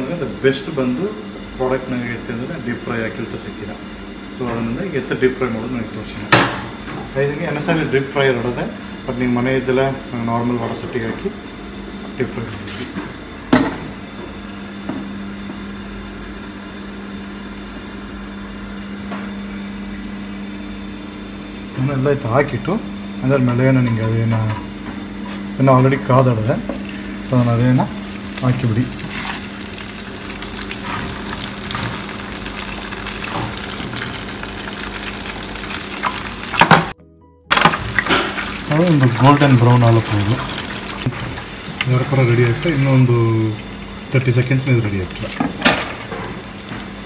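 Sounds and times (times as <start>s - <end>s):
kitchen equipment humming: 0.0s - 47.0s
food sizzling in deep fryer oil: 24.7s - 47.0s.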